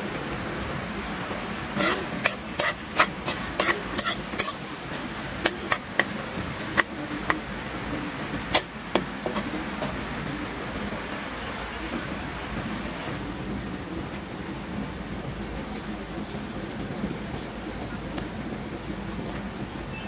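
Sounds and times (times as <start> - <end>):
boiling syrup bubbling: 0.0 - 13.3
spatula scraping a wok: 1.8 - 7.5, 8.3 - 10.2.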